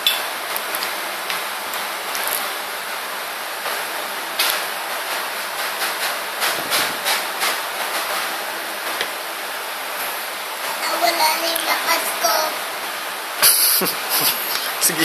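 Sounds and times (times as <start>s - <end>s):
background hiss: 5.8s - 15.0s.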